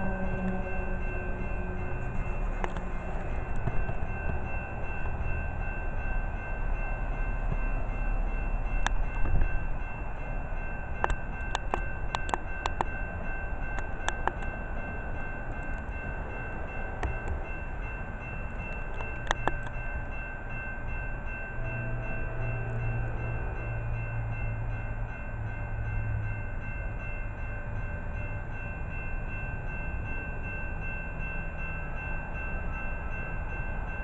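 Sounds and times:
low rumble: 0.0 - 5.7
crossing warning bell ringing: 0.0 - 34.0.

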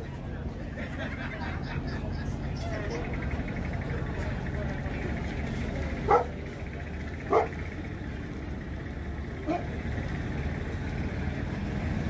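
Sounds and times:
dog barking: 6.1 - 6.4, 7.3 - 7.6.

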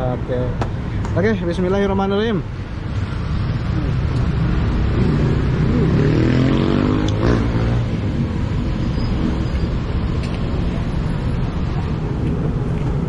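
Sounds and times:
road traffic rumbling: 0.0 - 13.0
vehicle engine speeding up: 4.2 - 9.5.

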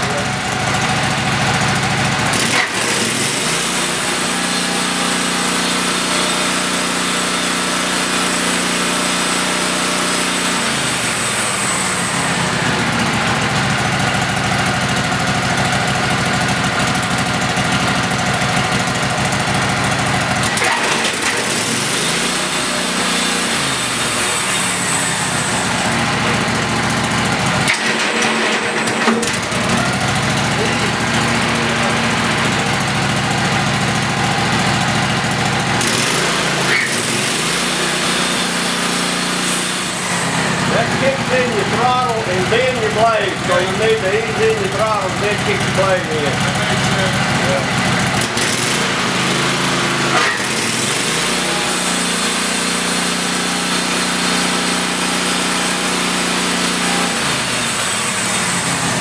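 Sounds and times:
sawmill engine running: 0.0 - 59.0.

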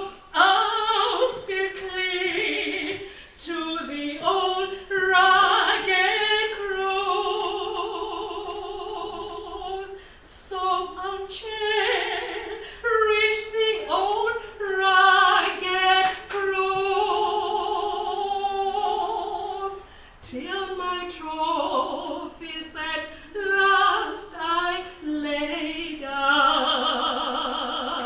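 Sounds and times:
woman singing a hymn: 0.0 - 28.0.

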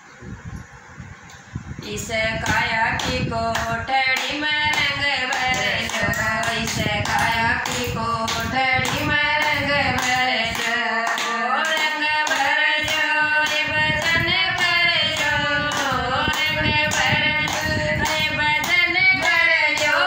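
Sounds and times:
women singing devotional song: 1.7 - 20.0
hand claps: 2.4 - 20.0.

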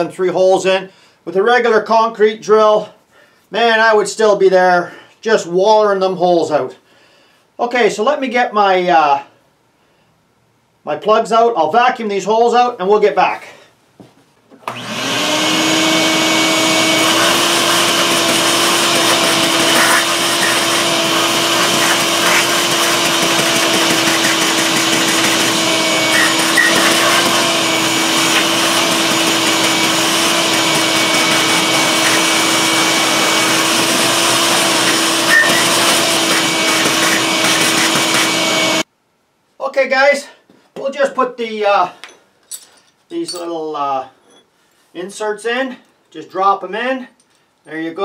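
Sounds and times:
shop vacuum running: 14.6 - 38.9.

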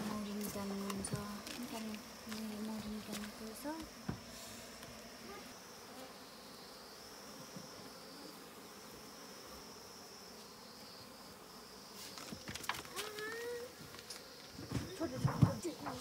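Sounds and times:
honey bees buzzing: 0.0 - 16.0
knock: 14.7 - 16.0.

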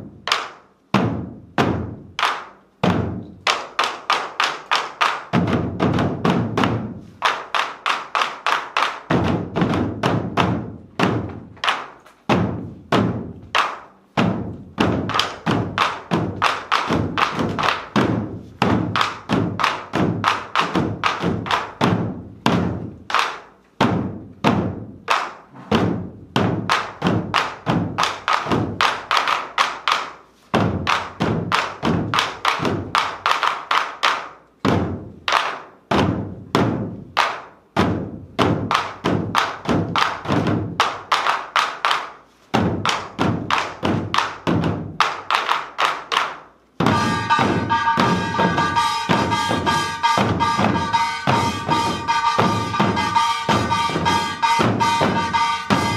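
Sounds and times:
barrel drums struck with sticks: 0.0 - 33.5, 34.6 - 41.3, 46.8 - 55.9
small hand gong ringing: 46.9 - 55.9.

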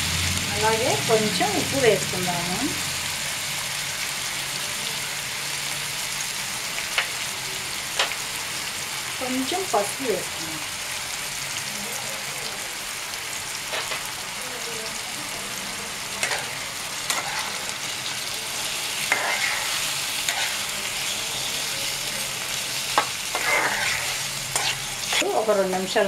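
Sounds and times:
prawns sizzling in oil: 0.0 - 26.0
spatula scraping and tapping: 17.1 - 17.5, 19.1 - 19.7, 23.0 - 25.3.

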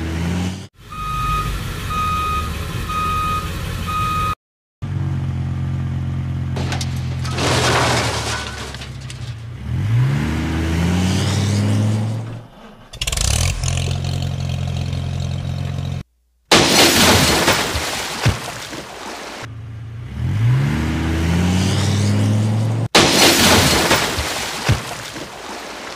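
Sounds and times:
vehicle engine revving: 0.0 - 0.7, 9.4 - 16.1, 19.5 - 22.9
mud splashing into puddle: 16.5 - 19.5, 23.0 - 25.9.

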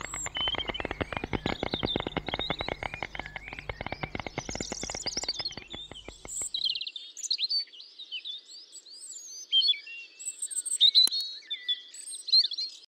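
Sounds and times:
rapid rattle: 0.0 - 6.6
sharp click: 0.0 - 6.6
songbirds chirping and trilling: 0.0 - 6.6.

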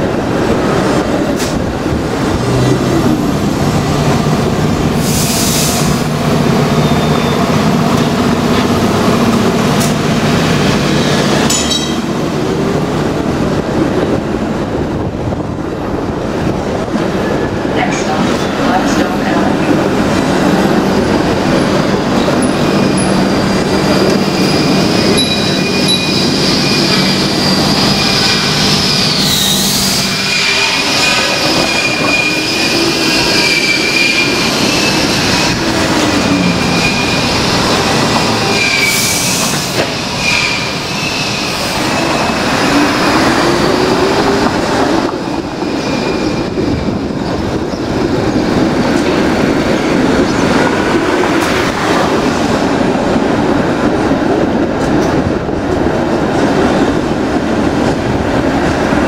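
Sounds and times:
wheels rumbling on rail: 0.0 - 59.0
wheels squealing: 22.2 - 44.4.

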